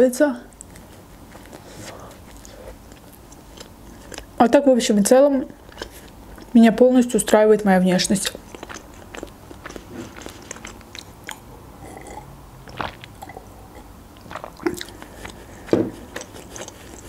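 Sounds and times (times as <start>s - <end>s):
mouth chewing food: 0.5s - 4.6s, 5.4s - 17.0s
person drinking from glass: 11.3s - 16.8s.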